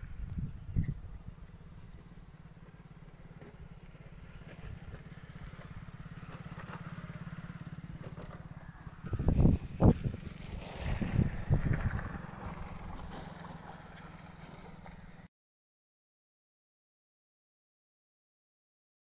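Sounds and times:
engine running steadily: 0.0s - 15.3s.

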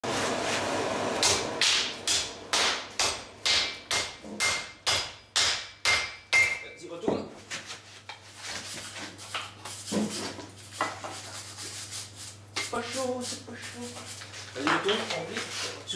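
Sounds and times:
hammer striking iron on anvil: 1.2s - 6.8s.

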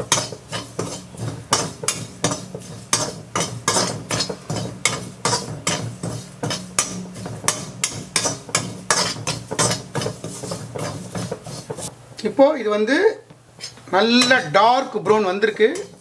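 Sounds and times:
spatula scraping and knocking pan: 0.0s - 11.9s, 13.3s - 16.0s.

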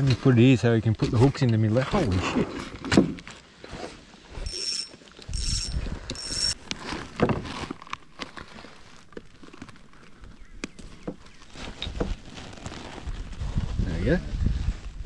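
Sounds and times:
fishing reel cranking whine: 4.4s - 6.6s.

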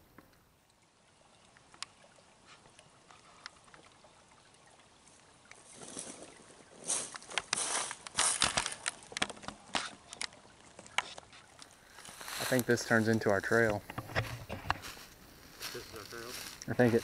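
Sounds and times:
creek trickling over rocks: 0.0s - 17.0s
rustling and crunching: 5.7s - 17.0s.

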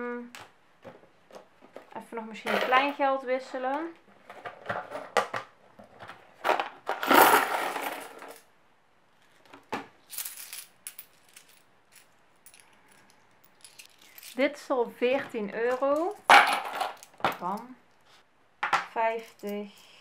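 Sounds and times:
coins clattering in plastic box: 6.4s - 8.4s, 10.0s - 14.4s, 15.7s - 17.6s.

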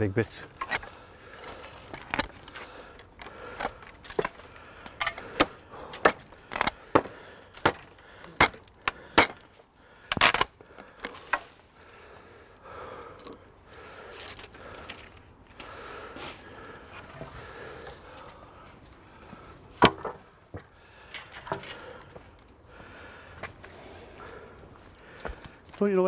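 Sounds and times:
rustling and handling of wood: 0.0s - 26.0s
hatchet chopping wood: 3.6s - 9.5s, 19.8s - 20.2s.

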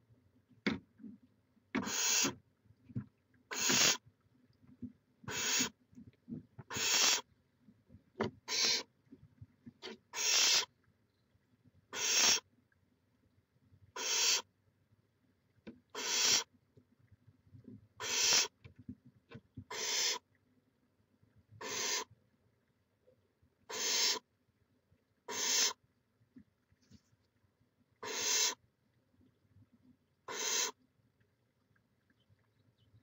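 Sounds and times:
owl chick rasping hiss: 1.8s - 2.4s, 3.5s - 4.0s, 5.3s - 5.8s, 6.7s - 7.3s, 8.5s - 8.9s, 9.8s - 10.7s, 11.9s - 12.4s, 14.0s - 14.5s, 15.9s - 16.5s, 18.0s - 18.6s, 19.7s - 20.2s, 21.6s - 22.1s, 23.7s - 24.2s, 25.3s - 25.8s, 28.0s - 28.6s, 30.3s - 30.8s.

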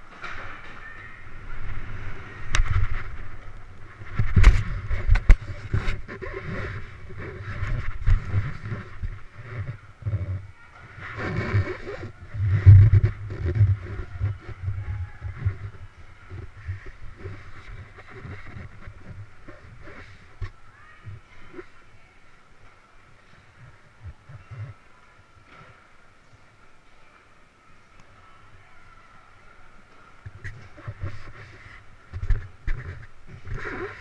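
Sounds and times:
bike rolling down wooden ramp: 0.0s - 10.4s.

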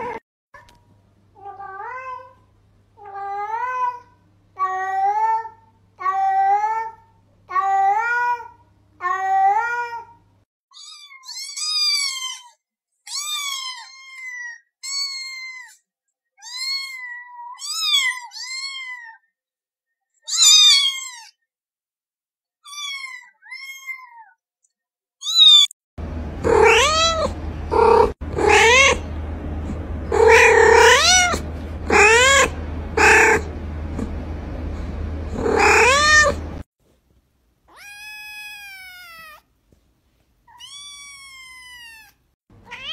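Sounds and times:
cats meowing: 16.4s - 19.2s, 26.4s - 34.1s, 35.4s - 36.6s, 37.7s - 39.4s, 40.5s - 42.9s
steady low hum: 26.0s - 36.6s.

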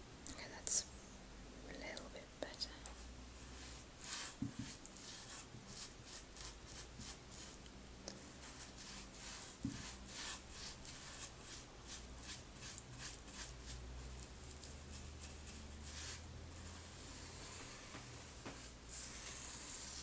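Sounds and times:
paintbrush swishing on wood: 3.0s - 7.6s, 8.3s - 20.0s.

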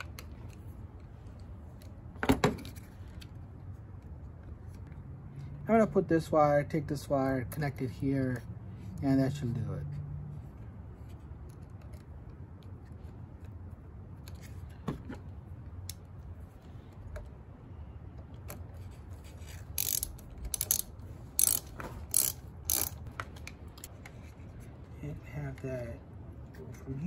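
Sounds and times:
faint low background hum: 0.0s - 27.0s
socket ratchet clicking: 19.5s - 23.9s.

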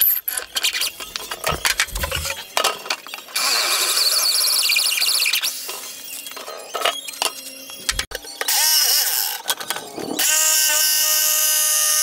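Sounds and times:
electric drill boring into wood: 8.4s - 9.5s, 10.1s - 12.0s.

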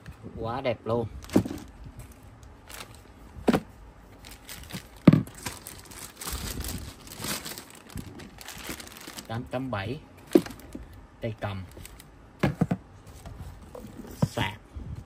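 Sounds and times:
plastic bags crinkling: 1.2s - 3.1s, 4.2s - 9.7s, 11.6s - 12.1s.

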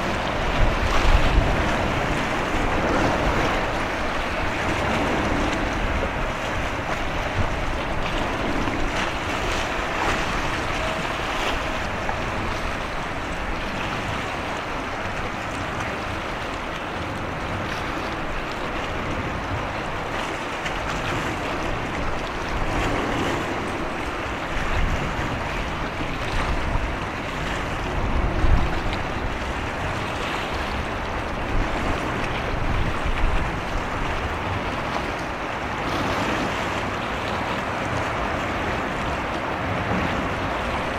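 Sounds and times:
wind and sea water rushing: 0.0s - 40.9s
wind gusts buffeting microphone: 0.0s - 40.9s.

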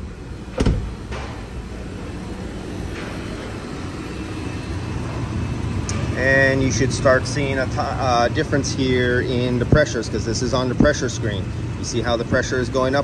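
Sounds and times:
car engine idling: 0.0s - 13.0s
car door shutting: 0.4s - 1.4s.

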